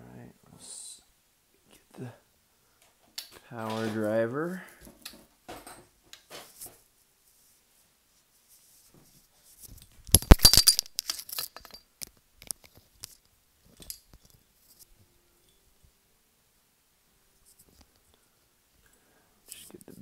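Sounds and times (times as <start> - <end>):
tools clattering on workbench: 3.2 - 4.0, 4.9 - 6.8, 10.2 - 11.9.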